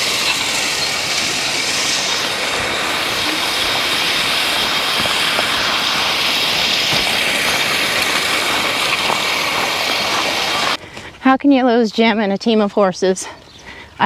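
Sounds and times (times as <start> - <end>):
steel tines scraping through gravel: 0.0 - 10.8.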